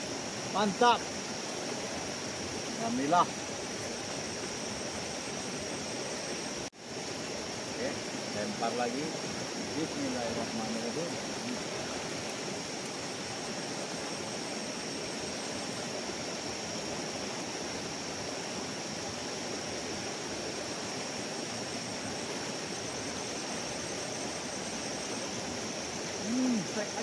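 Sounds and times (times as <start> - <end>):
river water rushing: 0.0 - 27.0.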